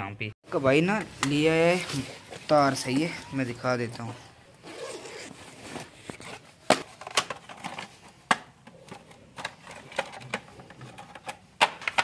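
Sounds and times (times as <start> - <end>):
soft rustling: 1.1 - 3.2.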